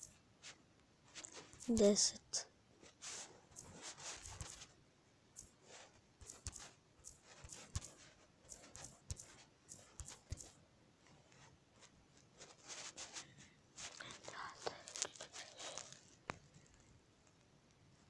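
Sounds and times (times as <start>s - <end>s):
soft rustle: 0.1s - 4.8s, 5.4s - 18.0s
fingertip tapping touchscreen: 3.5s - 4.7s, 5.4s - 10.6s.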